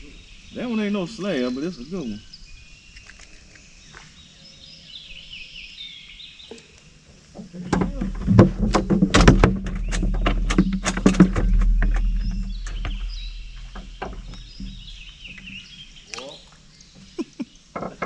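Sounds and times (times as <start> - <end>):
birds chirping: 0.0 - 18.0
knocks and clatter against boat: 7.4 - 15.8, 17.0 - 18.0
boat motor humming: 7.4 - 18.0.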